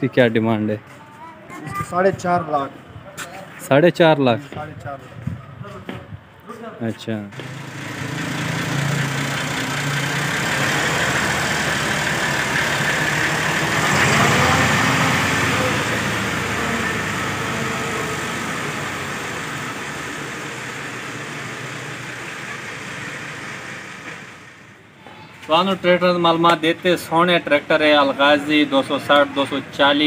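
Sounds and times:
tractor diesel engine: 7.3s - 25.0s.

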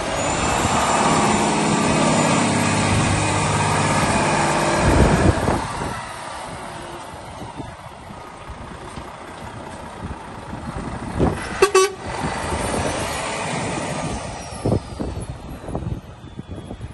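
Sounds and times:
truck diesel engine passing: 0.0s - 16.9s
truck horn toot: 11.4s - 12.2s.

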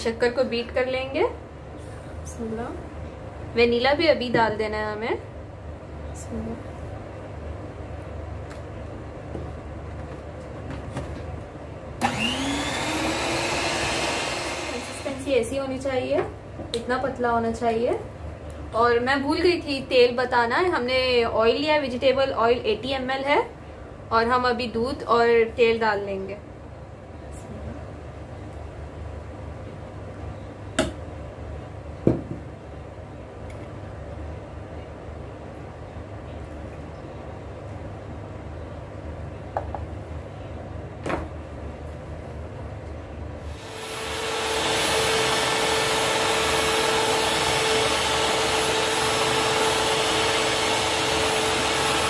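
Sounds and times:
stand mixer whisking batter: 12.0s - 15.1s, 43.8s - 52.0s.

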